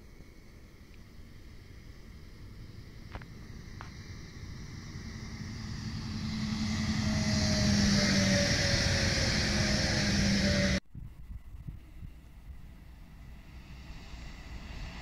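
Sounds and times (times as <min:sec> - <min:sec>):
train traction hum: 0:00.0 - 0:15.0
train wheel and rail noise: 0:00.0 - 0:15.0.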